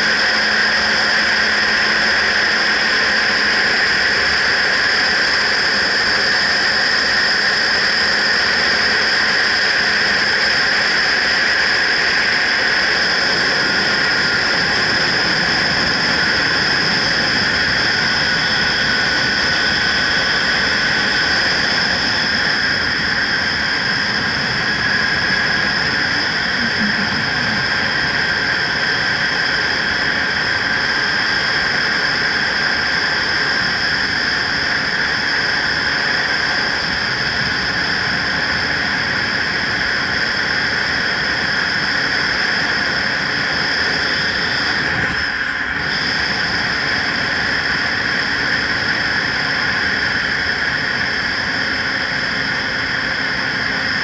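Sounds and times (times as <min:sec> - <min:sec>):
wind rushing: 0:24.9 - 0:28.9
road noise: 0:25.1 - 0:28.9
steady high tones: 0:26.0 - 0:28.2.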